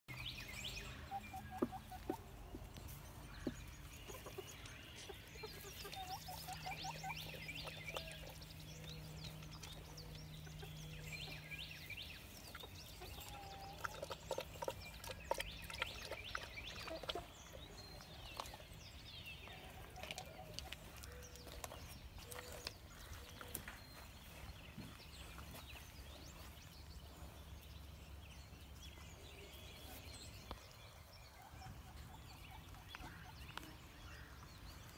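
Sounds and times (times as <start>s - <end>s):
chickens clucking: 0.7s - 18.6s, 19.4s - 25.9s, 31.3s - 34.0s.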